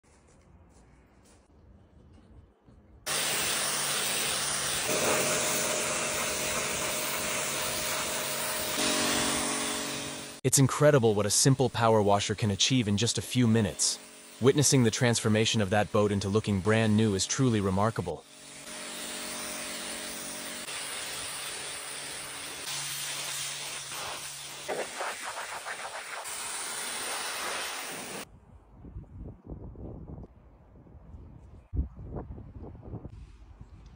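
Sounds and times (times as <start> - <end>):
steady hum: 3.1 - 23.0
pressure washer water jet hiss: 3.1 - 28.3.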